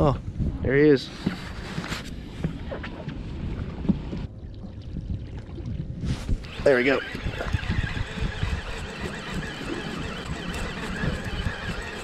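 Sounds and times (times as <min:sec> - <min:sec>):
wind buffeting microphone: 0:00.0 - 0:12.0
fishing reel whirring: 0:06.4 - 0:12.0.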